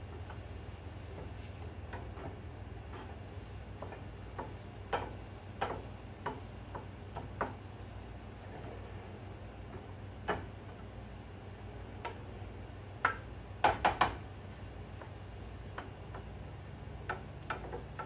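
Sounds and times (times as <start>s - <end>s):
low steady hum: 0.0s - 18.0s
spatula scraping skillet: 0.3s - 7.7s.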